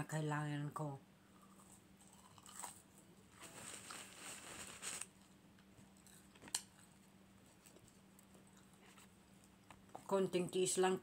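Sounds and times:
faint low hum: 0.0s - 11.0s
person chewing crunchy food: 1.3s - 3.1s, 5.1s - 10.1s.

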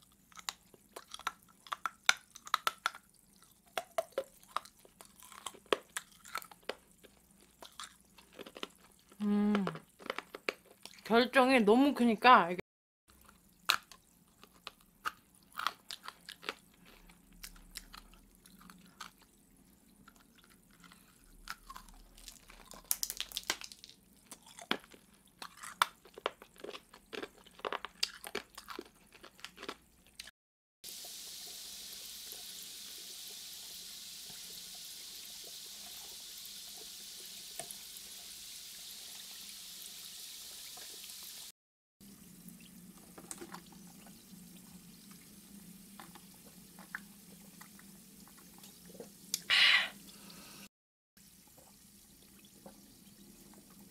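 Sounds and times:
crunching hard candy: 0.0s - 11.0s, 13.2s - 19.3s, 20.0s - 30.3s.

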